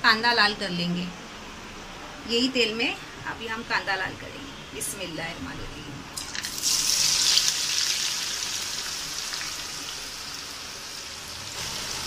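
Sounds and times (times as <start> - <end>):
onions sizzling in hot oil: 6.2 - 12.0.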